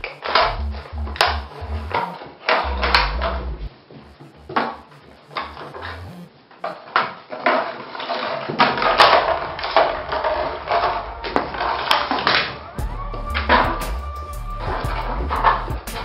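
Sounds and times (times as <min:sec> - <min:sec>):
dubstep electronic music: 0:00.0 - 0:06.8, 0:12.8 - 0:16.0.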